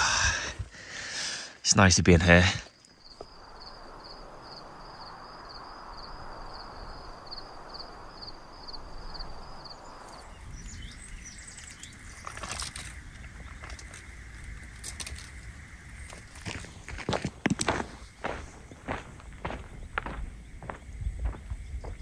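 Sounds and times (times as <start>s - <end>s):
steady hiss: 0.0s - 17.2s
bird chirps: 9.6s - 14.0s.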